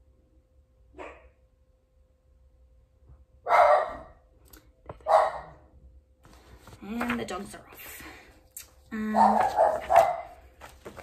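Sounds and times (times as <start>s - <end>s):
dog barking: 0.9s - 1.4s, 3.4s - 4.2s, 5.0s - 5.7s, 9.2s - 10.4s.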